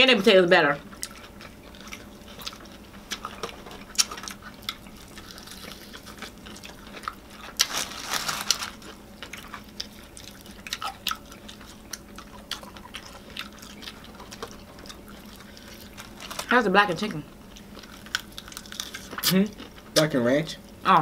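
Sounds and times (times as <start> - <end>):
wet chewing and lip smacks: 0.8 - 7.7, 8.9 - 16.2
fried chicken crunching: 0.9 - 20.1.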